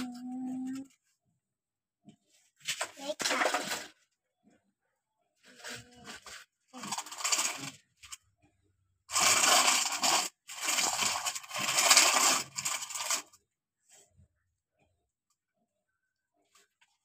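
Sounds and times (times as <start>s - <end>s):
sandy soil scraped by hand: 9.1s - 13.2s.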